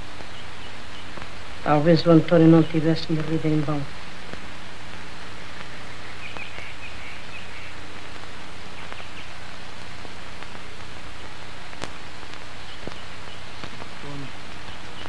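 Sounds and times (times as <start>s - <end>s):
film soundtrack hiss and hum: 0.0s - 15.0s
faint clicks: 11.7s - 13.9s.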